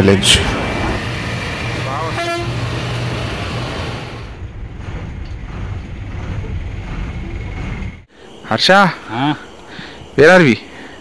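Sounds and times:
bus engine and road rumble: 0.0s - 8.1s.

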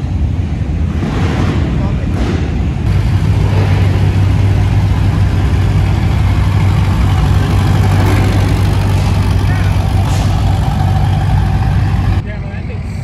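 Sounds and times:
vehicle engine idling: 2.6s - 12.7s.

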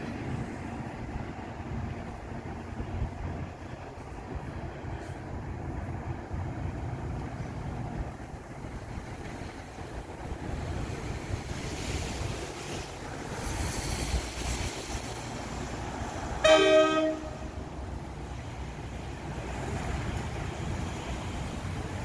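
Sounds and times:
wind buffeting microphone: 0.0s - 16.4s
train horn chord: 16.4s - 17.6s.

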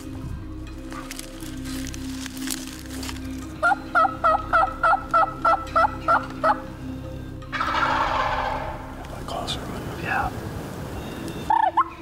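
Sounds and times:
wild turkey yelps: 11.4s - 12.0s.

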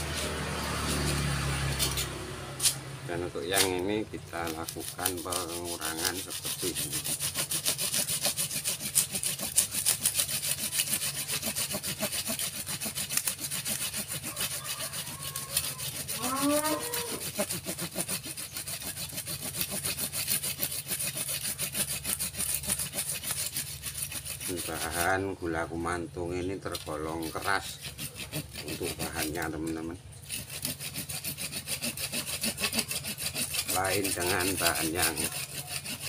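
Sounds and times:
hand saw cutting wood: 0.0s - 36.0s.

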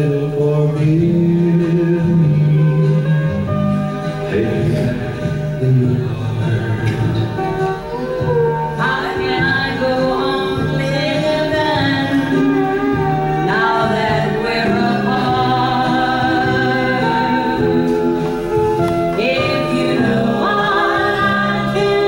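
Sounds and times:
musical backing: 0.0s - 22.0s
woman singing with vibrato: 7.9s - 22.0s.

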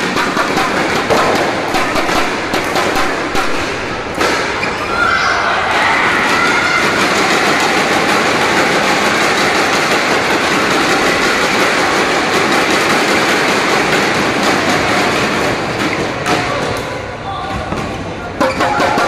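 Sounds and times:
crowd cheering and shouting: 4.4s - 12.4s.

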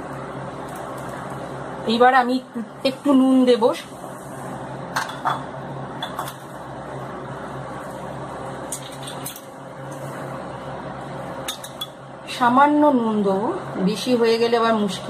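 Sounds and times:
background hiss and hum: 0.0s - 15.0s
spoon clinking against bowls: 11.4s - 12.0s.

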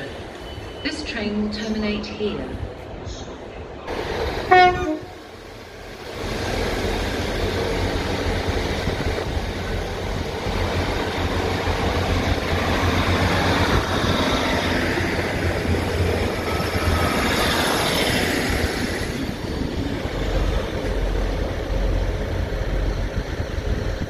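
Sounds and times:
diesel train engines droning: 0.0s - 24.0s
train wheels on rails: 0.0s - 24.0s.

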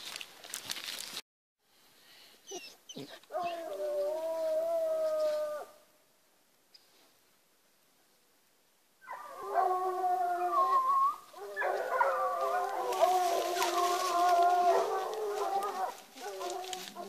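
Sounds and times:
hounds baying: 9.0s - 17.0s.

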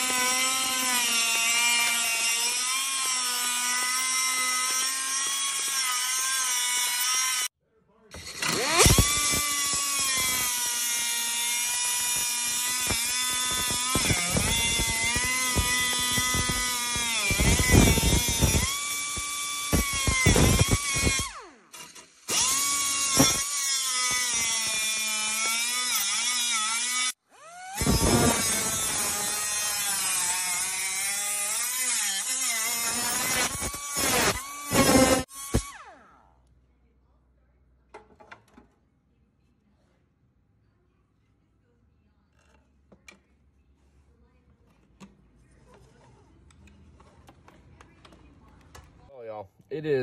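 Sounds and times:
cut-off wheel whining on steel: 8.2s - 36.1s.

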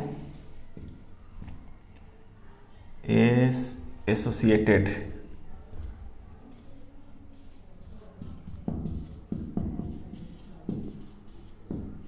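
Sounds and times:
marker scratching on whiteboard: 0.0s - 1.6s, 6.4s - 12.0s.

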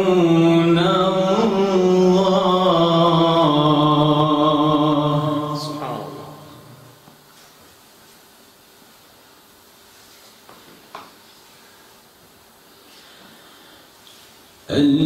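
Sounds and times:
man reciting melodically: 0.0s - 7.0s, 14.6s - 15.0s.

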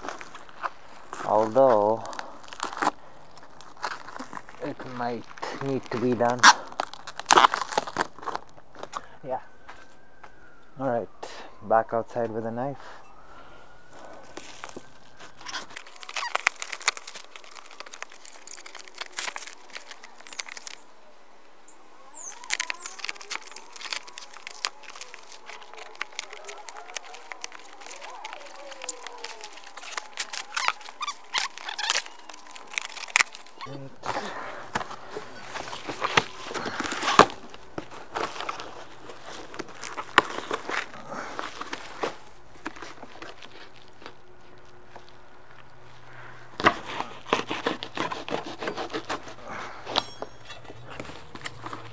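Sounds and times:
cardboard tearing and scraping: 0.0s - 8.5s, 14.3s - 20.9s, 22.0s - 44.2s, 46.6s - 51.9s
plastic wrapping crinkling: 0.0s - 9.2s, 13.1s - 21.0s, 21.7s - 51.9s
short high squeaks: 15.3s - 21.0s, 21.7s - 33.9s, 48.6s - 51.9s
knife cutting cardboard box: 46.6s - 51.9s.

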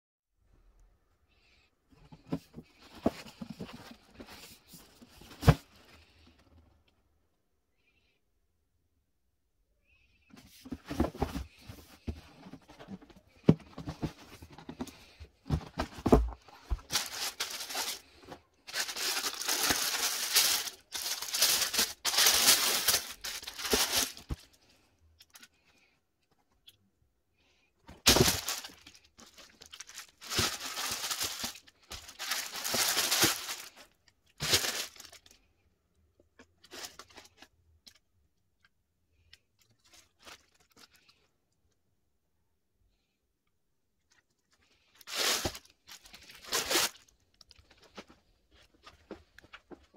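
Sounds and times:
tissue paper rustling: 13.7s - 24.4s, 28.0s - 35.2s, 45.1s - 47.0s.

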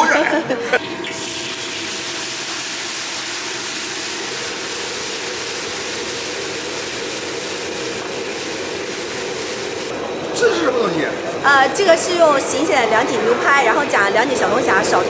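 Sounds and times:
hot oil sizzling in a wok: 1.0s - 9.9s.

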